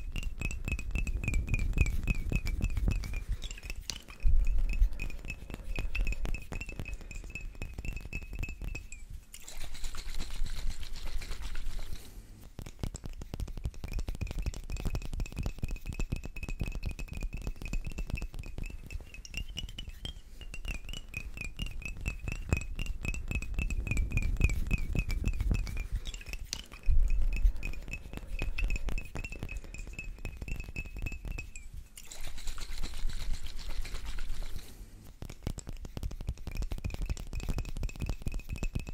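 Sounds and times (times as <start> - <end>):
high glassy ring: 0.0 - 9.2, 17.7 - 32.1
fingernail tapping glass bottles: 0.0 - 38.9
soft hiss: 0.0 - 38.9.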